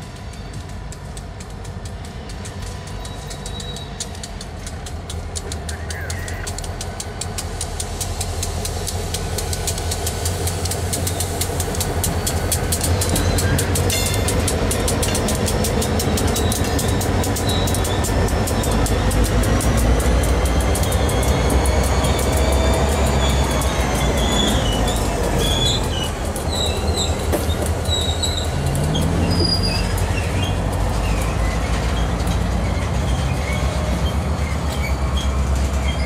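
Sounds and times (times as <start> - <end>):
diesel locomotive engine drone: 0.0 - 36.0
train wheels clicking: 0.0 - 36.0.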